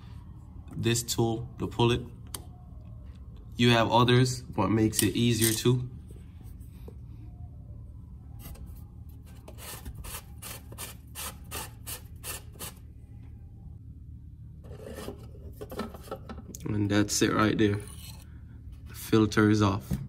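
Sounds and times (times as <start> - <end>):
steady low hum: 0.0 - 20.0
cap rubbing scrapes: 14.6 - 16.1.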